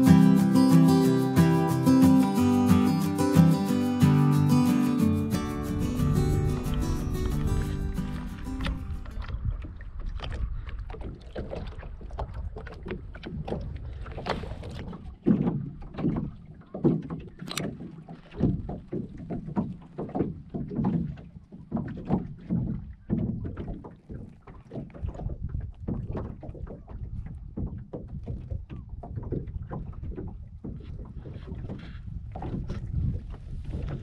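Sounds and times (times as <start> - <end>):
water lapping against hull: 4.7 - 34.0
wind rumble on microphone: 5.4 - 16.5, 22.0 - 34.0.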